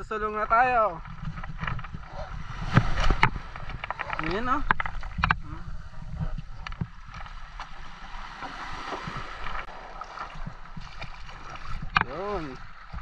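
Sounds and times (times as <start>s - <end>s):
wind buffeting microphone: 0.0s - 13.0s
water washing over pebbles: 7.0s - 13.0s.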